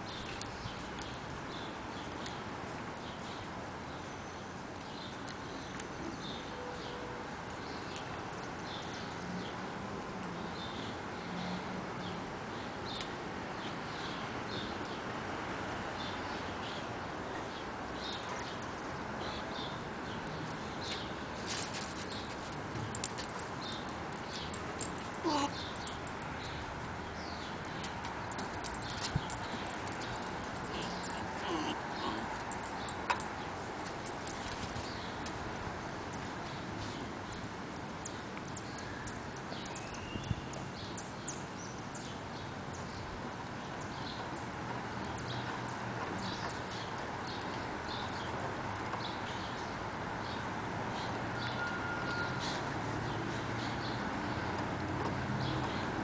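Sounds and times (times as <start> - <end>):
outdoor background noise: 0.0 - 56.0
paws and claws clicking: 27.6 - 35.4.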